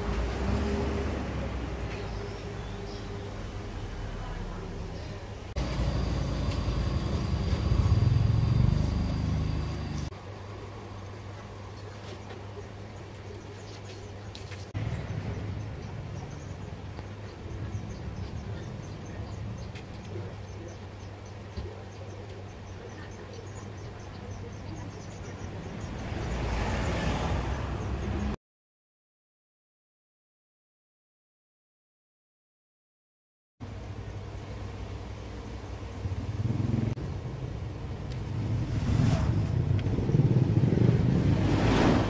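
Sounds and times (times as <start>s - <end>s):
steady low hum: 0.0s - 26.3s, 33.6s - 42.0s
engine running with rapid pulsing: 5.6s - 10.1s, 35.9s - 42.0s
thin steady high tone: 5.6s - 10.1s.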